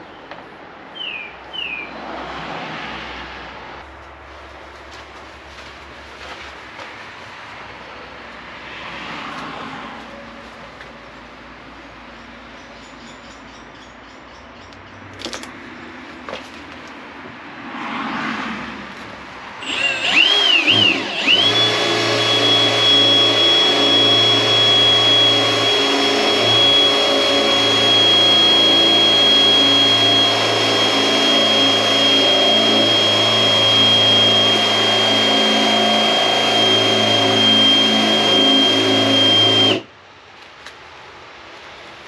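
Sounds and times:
small electric motor whine: 0:19.6 - 0:39.9.

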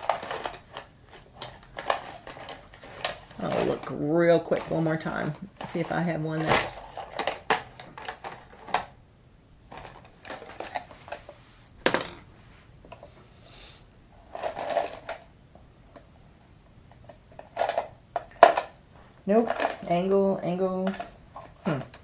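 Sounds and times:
paintbrushes clattering on table: 0:11.8 - 0:12.2.

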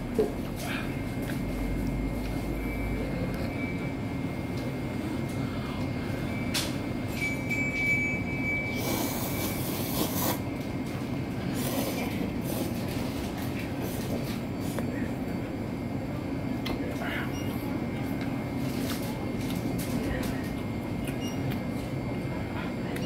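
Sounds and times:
steady low hum: 0:00.0 - 0:23.0
noodles slurped: 0:08.8 - 0:10.4.

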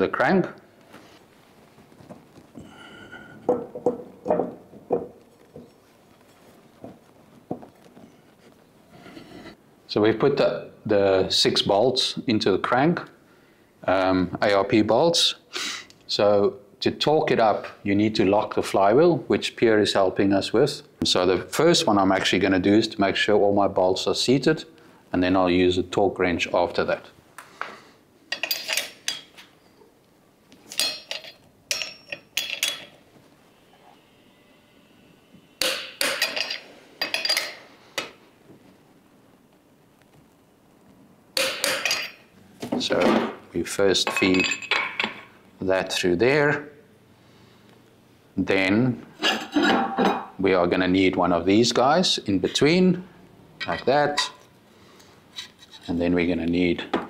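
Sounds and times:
metal hand tools clinking: 0:28.3 - 0:29.3, 0:30.7 - 0:33.0, 0:35.6 - 0:37.6, 0:41.4 - 0:42.3, 0:44.1 - 0:45.3.

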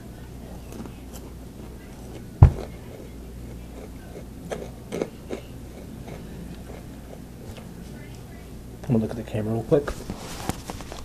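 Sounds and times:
loud thump: 0:02.4 - 0:02.7
crunchy snacks being bitten: 0:04.5 - 0:06.8.

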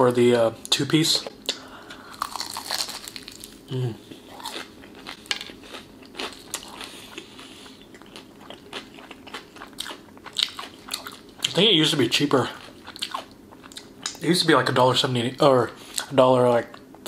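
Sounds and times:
crunching fried chicken: 0:02.0 - 0:14.2.

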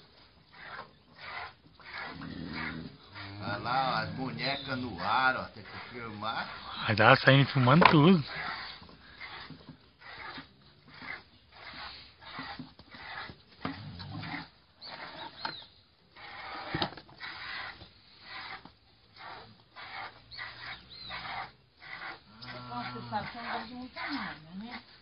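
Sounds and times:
piglet sucking: 0:00.5 - 0:03.4, 0:08.2 - 0:15.5, 0:16.1 - 0:24.9.

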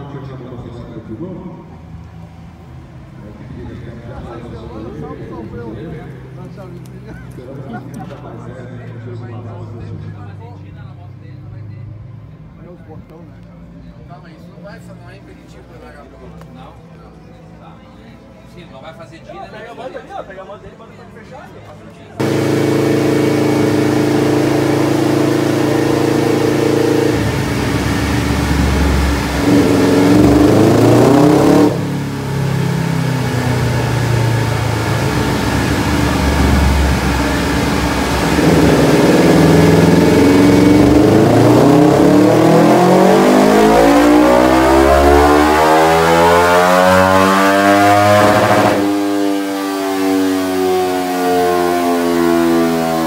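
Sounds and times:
racing motorcycle engine revving: 0:22.2 - 0:53.0.

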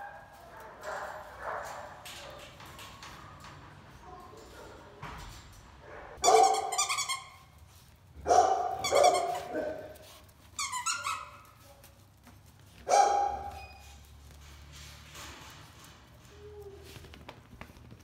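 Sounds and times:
puppies yapping: 0:06.2 - 0:07.5, 0:08.3 - 0:11.6.

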